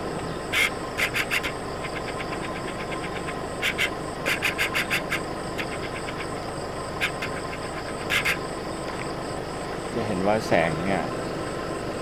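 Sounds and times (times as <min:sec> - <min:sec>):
insects trilling: 0:00.0 - 0:12.0
bursts of rapid sharp chirps: 0:00.4 - 0:08.8.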